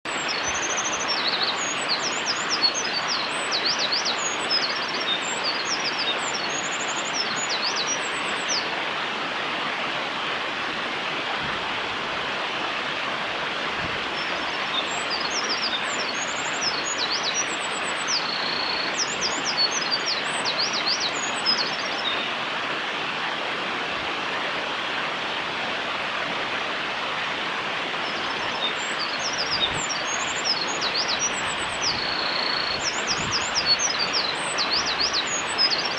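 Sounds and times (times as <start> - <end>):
wren singing trills: 0.1 - 8.6, 14.2 - 22.3, 28.1 - 35.9
stream water rushing: 0.1 - 35.9.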